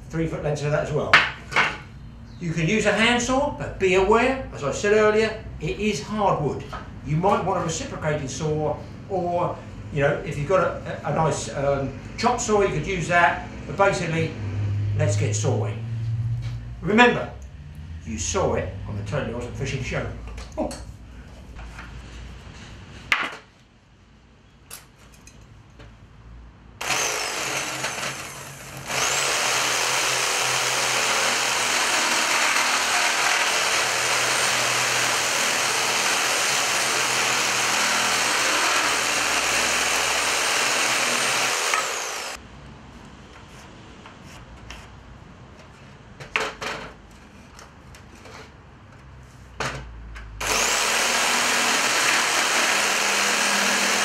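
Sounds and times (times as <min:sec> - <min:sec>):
reciprocating saw cutting wood: 0:26.8 - 0:42.4, 0:50.4 - 0:54.0.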